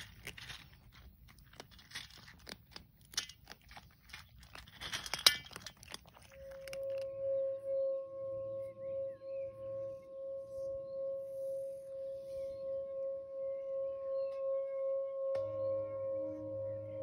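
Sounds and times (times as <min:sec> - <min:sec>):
singing bowl ringing: 0:06.4 - 0:17.0.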